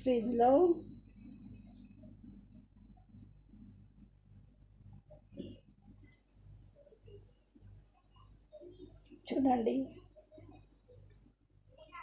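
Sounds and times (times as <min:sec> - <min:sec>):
low hum: 0:00.0 - 0:09.1
faint high hiss: 0:05.0 - 0:12.0.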